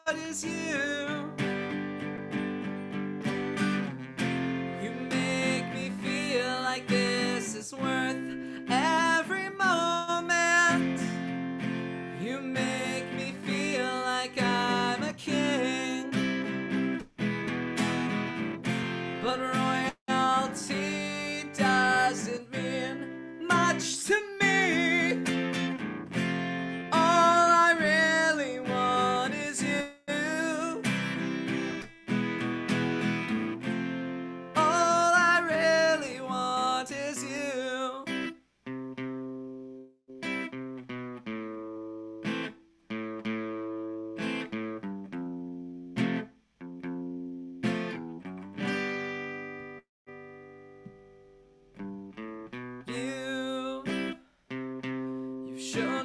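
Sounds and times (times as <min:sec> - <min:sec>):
man singing: 0:00.0 - 0:01.7, 0:04.6 - 0:11.4, 0:12.0 - 0:16.7, 0:18.9 - 0:25.8, 0:26.8 - 0:31.3, 0:34.5 - 0:38.3, 0:52.8 - 0:54.2, 0:55.5 - 0:56.0
strummed acoustic guitar: 0:00.1 - 0:56.0.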